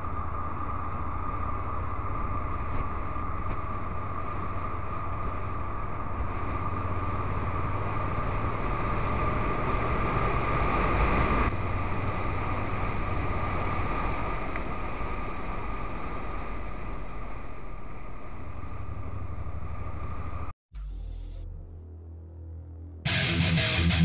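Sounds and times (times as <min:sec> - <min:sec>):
motorcycle engine accelerating: 0:00.0 - 0:16.9
wind and road noise: 0:00.0 - 0:20.6.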